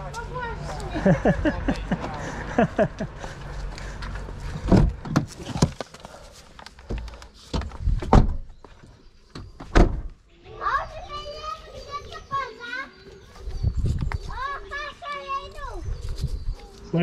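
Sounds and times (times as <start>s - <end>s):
car door knocks and clunks: 4.6s - 5.3s, 7.6s - 8.5s.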